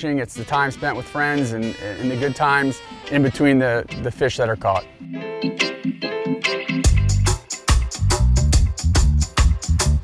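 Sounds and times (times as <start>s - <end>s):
heavy bass: 6.8s - 10.0s
steady drum beat: 6.8s - 10.0s.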